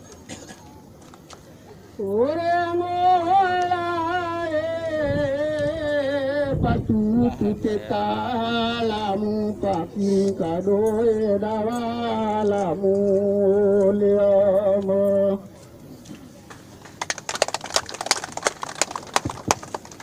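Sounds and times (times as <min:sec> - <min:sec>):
unaccompanied chanting: 0:01.9 - 0:15.7.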